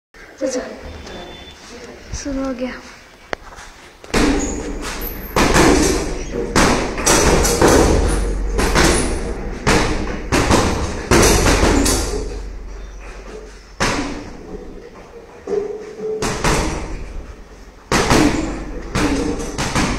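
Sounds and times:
punches thudding on heavy bag: 4.1s - 12.4s, 13.8s - 14.4s, 16.2s - 17.2s, 17.9s - 19.9s.

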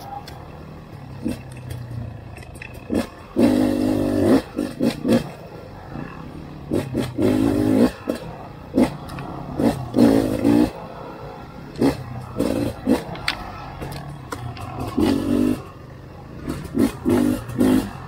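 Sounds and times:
two-stroke motorcycle engine revving: 0.7s - 10.9s, 11.7s - 18.0s.

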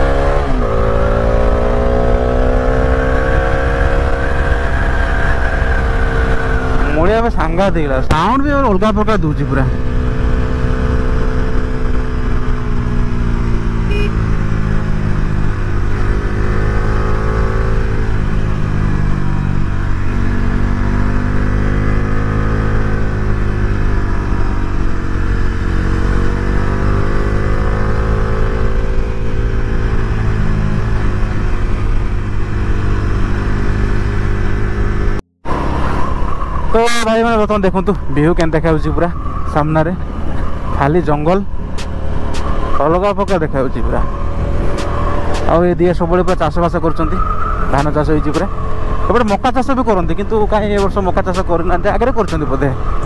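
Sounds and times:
motorcycle engine running: 9.6s - 35.6s.

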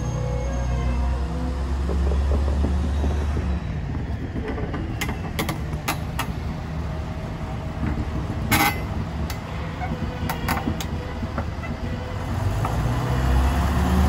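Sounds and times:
diesel locomotive rumbling: 0.0s - 14.0s
metallic knocks and clanks: 1.8s - 6.6s, 7.8s - 12.0s.

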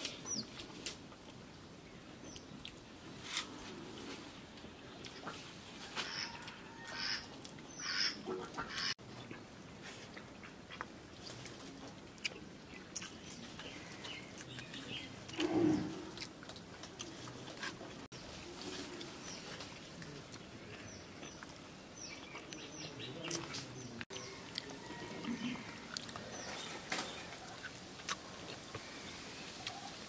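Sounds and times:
chewing: 2.2s - 5.6s, 9.2s - 30.0s
birds chirping: 4.1s - 9.5s, 10.4s - 16.3s, 18.0s - 30.0s.

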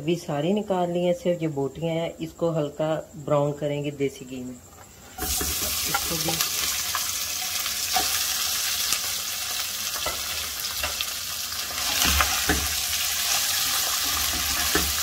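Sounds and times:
meat sizzling in ghee: 5.1s - 15.0s
spatula scraping and knocking pot: 11.7s - 15.0s.

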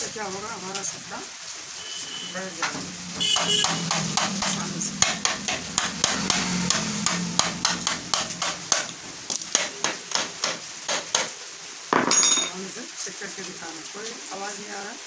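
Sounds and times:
hammer tapping metal: 3.3s - 11.3s, 12.0s - 12.6s.

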